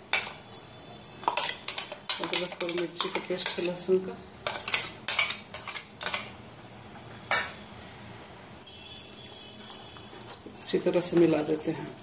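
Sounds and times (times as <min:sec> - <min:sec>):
steel spoon scraping and clinking: 0:00.1 - 0:03.8, 0:04.4 - 0:06.3.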